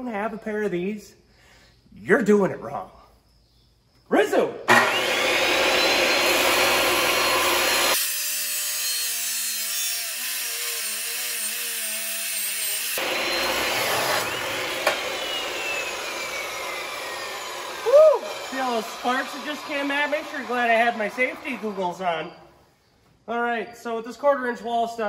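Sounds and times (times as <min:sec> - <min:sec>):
saw wheel grinding through steel: 0:04.7 - 0:22.4
chop saw whining: 0:04.7 - 0:22.5.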